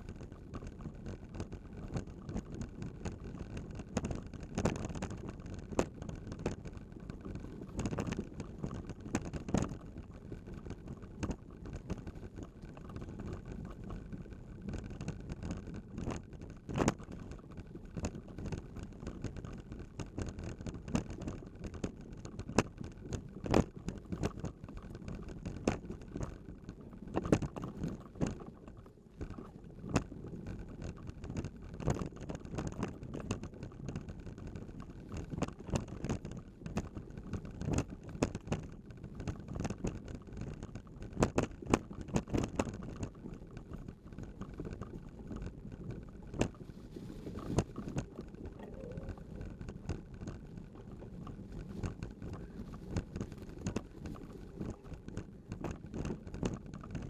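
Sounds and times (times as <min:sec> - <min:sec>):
wind on microphone: 0:00.0 - 0:57.0
vehicle rumbling on dirt trail: 0:29.2 - 0:57.0.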